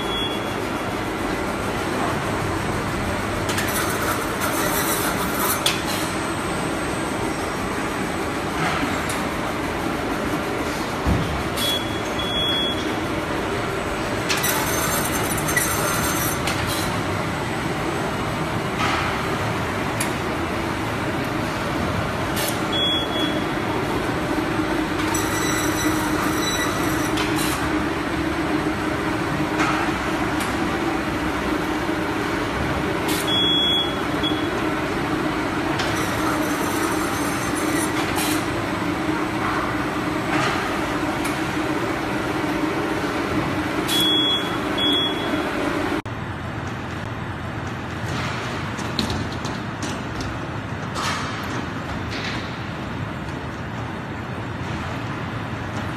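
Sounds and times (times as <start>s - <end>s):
machine rumble with low hum: 0.0s - 55.9s
high metallic screech: 14.4s - 16.4s, 25.1s - 27.5s, 36.0s - 38.0s
clanks from rollers: 24.9s - 27.8s.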